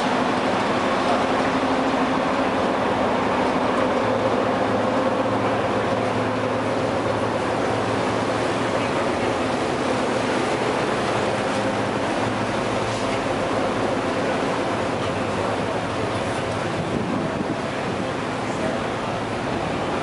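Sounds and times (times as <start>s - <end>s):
boat engine droning: 0.0s - 20.0s
wind and water rushing: 0.0s - 20.0s.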